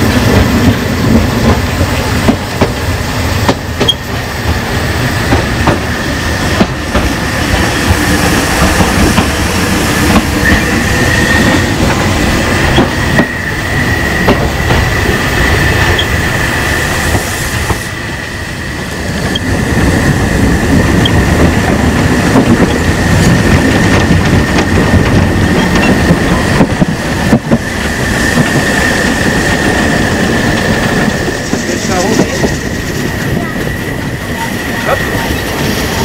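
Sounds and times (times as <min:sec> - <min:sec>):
train rolling rumble: 0:00.0 - 0:36.0
wheels clicking over rail joints: 0:20.8 - 0:28.6.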